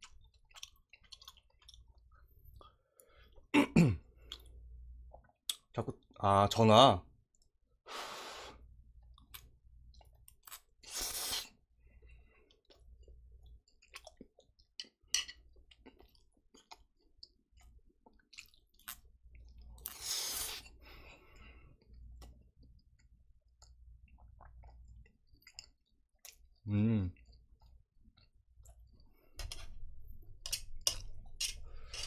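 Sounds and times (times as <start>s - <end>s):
wet chewing: 0.0s - 2.3s, 12.0s - 20.0s
noodle slurps: 10.8s - 11.6s.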